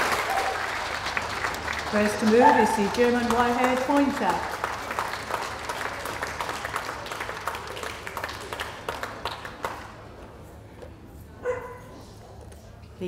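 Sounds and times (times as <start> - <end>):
crowd applauding: 0.0 - 10.2.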